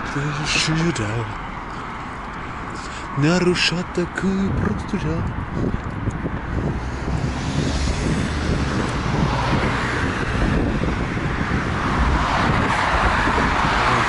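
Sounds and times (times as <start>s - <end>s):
cars passing: 0.0s - 14.0s
steady low rumble: 3.4s - 12.8s.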